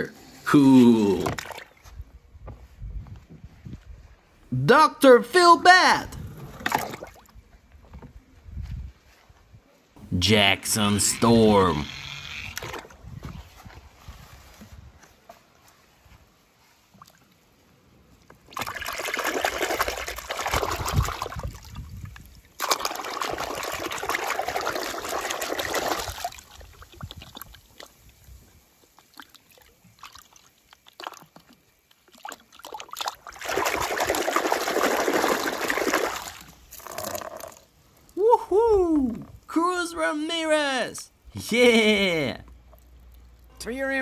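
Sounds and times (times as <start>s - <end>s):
water splashing in a tub: 1.1s - 1.9s, 6.6s - 7.4s, 18.2s - 37.7s.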